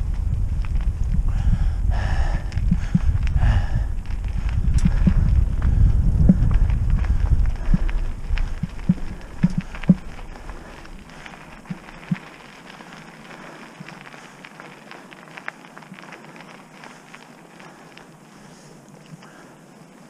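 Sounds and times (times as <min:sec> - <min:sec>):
low rumble: 0:00.0 - 0:14.5
bike crunching on dirt trail: 0:00.0 - 0:20.0.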